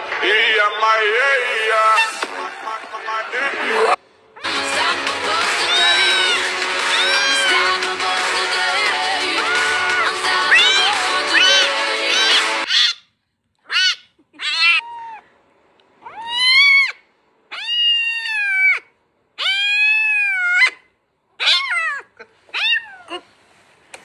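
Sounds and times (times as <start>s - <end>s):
cat meowing: 5.6s - 7.8s, 9.3s - 13.0s, 13.7s - 15.3s, 16.0s - 20.8s, 21.4s - 23.2s.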